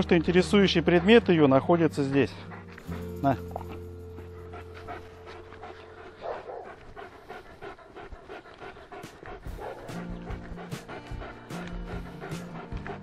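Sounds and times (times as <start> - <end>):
background music: 0.0 - 13.0
dog panting: 0.0 - 13.0
dog barking: 6.2 - 6.8, 9.6 - 10.1.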